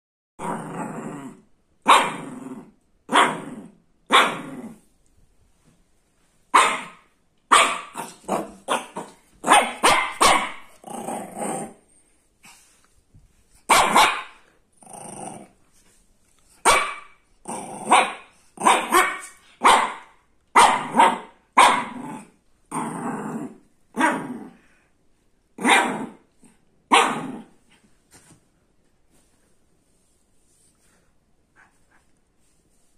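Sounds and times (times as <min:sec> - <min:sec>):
puppy barking: 0:01.8 - 0:02.2, 0:03.1 - 0:03.4, 0:04.1 - 0:04.5, 0:06.5 - 0:10.7, 0:13.7 - 0:14.4, 0:16.6 - 0:17.2, 0:17.9 - 0:22.0, 0:25.6 - 0:26.1, 0:26.9 - 0:27.3.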